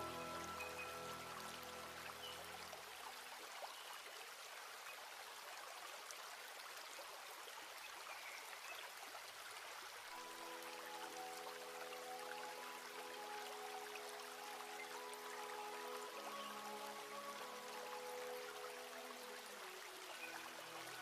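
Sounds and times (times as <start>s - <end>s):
soft background music: 0.0s - 3.4s, 10.0s - 21.0s.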